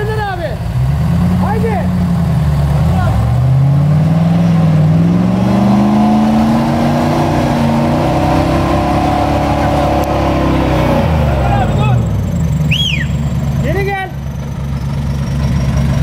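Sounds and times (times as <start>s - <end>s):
engine revving hard: 2.6s - 13.8s.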